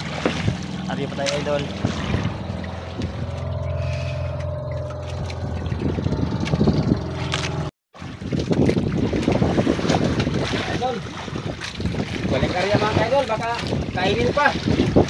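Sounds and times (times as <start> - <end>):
boat engine humming: 0.0 - 7.8
rough water splashing: 0.0 - 15.0
water wash: 0.0 - 15.0
wind noise: 0.1 - 15.0.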